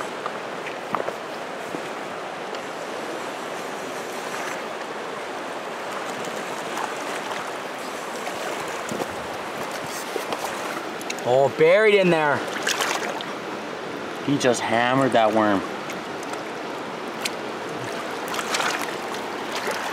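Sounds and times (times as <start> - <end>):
river over rocks: 0.0 - 19.9
boot splashing in water: 12.5 - 13.3, 17.2 - 19.9.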